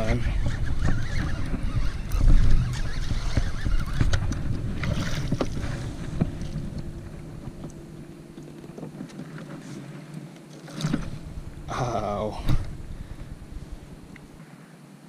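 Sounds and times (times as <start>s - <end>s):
wind rumbling on microphone: 0.0s - 14.4s
sharp clicks and knocks: 0.8s - 7.8s.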